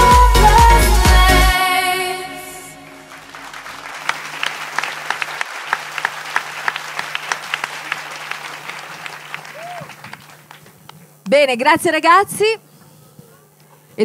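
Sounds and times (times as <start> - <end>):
dance music: 0.0 - 3.1
audience applauding: 3.0 - 10.8.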